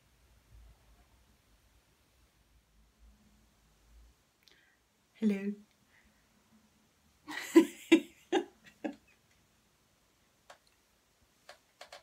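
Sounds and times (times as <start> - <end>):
woman laughing: 7.3 - 9.2
faint clicks: 10.5 - 10.8, 11.4 - 12.0.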